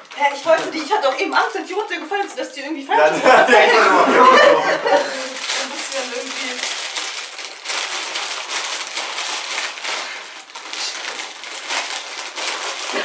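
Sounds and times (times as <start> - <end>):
crisp bag crinkling: 0.0 - 2.2, 4.8 - 13.0.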